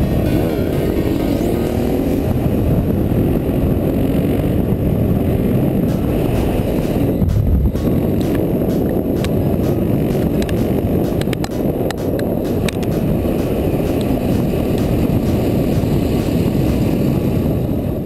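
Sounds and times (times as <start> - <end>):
motorcycle engine and road rush: 0.0 - 18.0
sharp clicks: 5.9 - 17.0.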